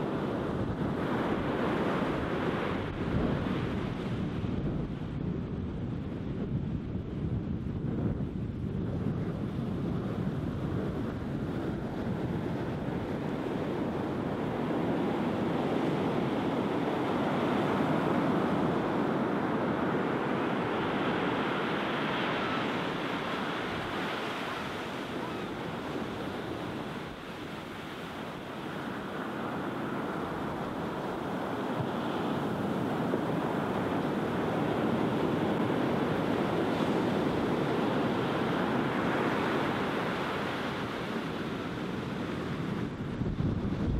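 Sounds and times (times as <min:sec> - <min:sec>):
sea surf breaking on sand: 0:00.0 - 0:05.4, 0:08.8 - 0:43.9.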